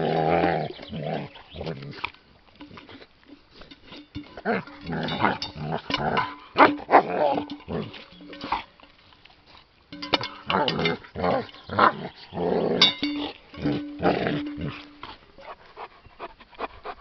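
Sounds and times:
metal chain clinking: 3.6 - 8.7, 9.9 - 11.8, 12.6 - 15.2
dog growling: 10.5 - 13.0.

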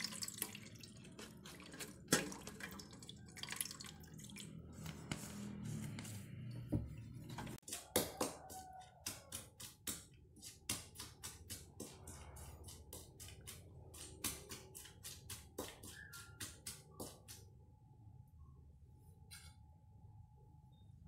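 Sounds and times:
coconut milk dripping and splashing: 0.0 - 4.6.

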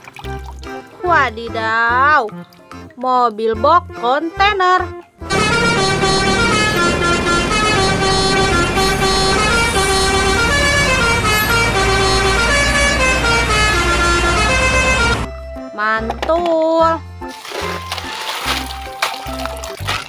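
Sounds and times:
diesel engine rumble: 5.2 - 15.3
musical air horn: 5.2 - 15.3.

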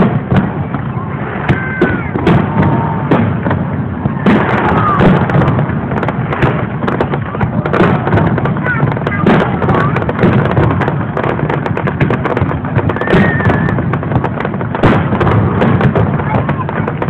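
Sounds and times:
firework whistling glides: 0.0 - 8.0, 12.2 - 14.6
firework bangs and crackles: 0.0 - 17.0.

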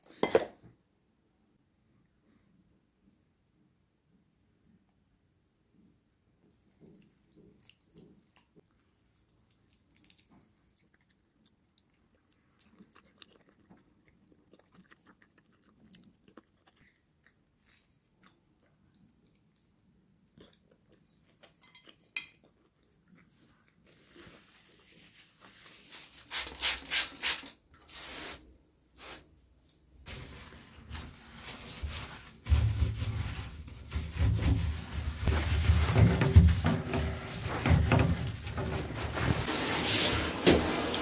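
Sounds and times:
faint chewing: 6.4 - 25.5
short hissing bursts: 26.3 - 28.4, 39.5 - 41.0.

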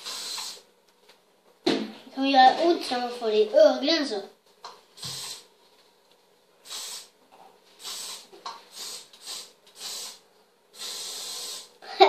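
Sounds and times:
hairspray hissing bursts: 0.0 - 0.6, 5.0 - 5.5, 6.6 - 7.2, 7.8 - 10.2, 10.8 - 11.8.

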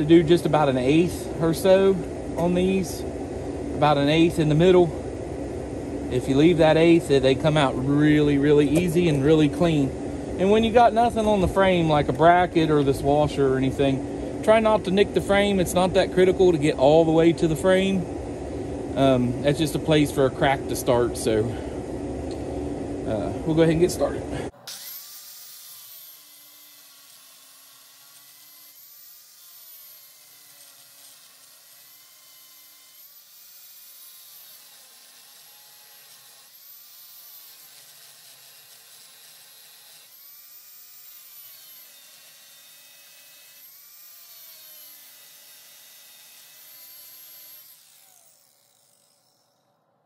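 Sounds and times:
angle grinder cutting steel: 24.5 - 49.8.

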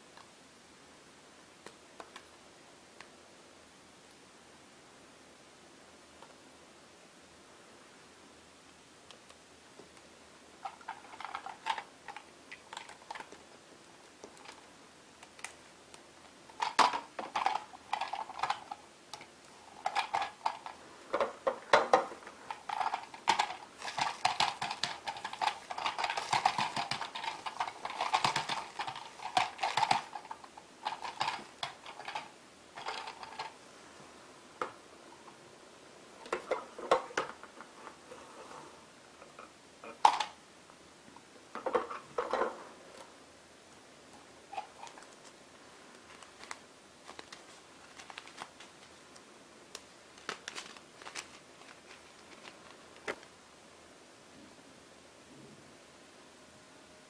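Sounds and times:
plastic parts clicking and rattling: 10.6 - 13.4, 14.2 - 14.6, 16.5 - 33.6, 36.2 - 38.0, 39.4 - 40.4, 46.0 - 48.8, 49.7 - 53.3.

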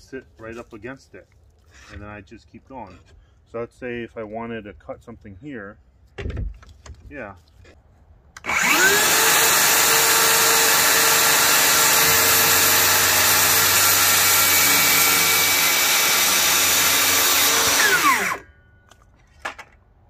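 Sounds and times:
saw blade winding down: 8.4 - 18.5
circular saw whining: 8.4 - 18.7.

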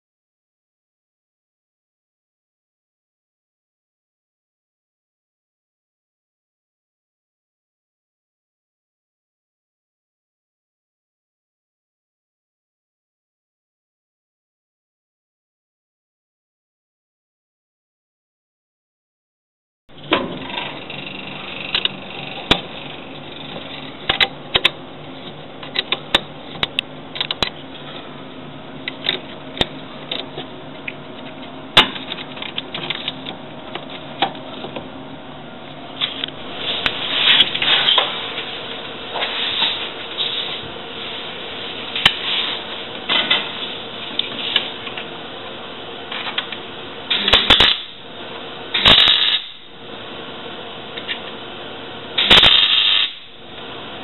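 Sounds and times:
arc welding bursts: 47.1 - 48.0, 48.7 - 49.7, 52.2 - 53.4.

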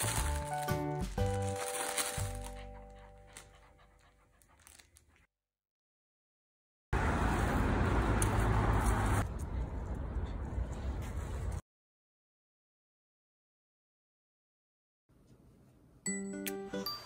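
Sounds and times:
outdoor noise with low rumble: 7.0 - 11.6.

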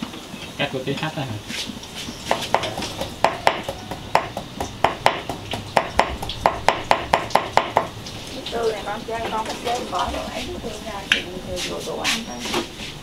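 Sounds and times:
knife chopping on wooden board: 2.3 - 7.9.

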